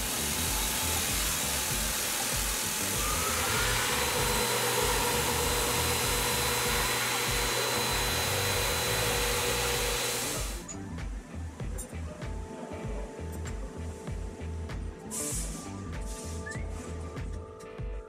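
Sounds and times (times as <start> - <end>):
coolant hissing: 0.0 - 10.6
mill spindle whine: 0.0 - 10.7.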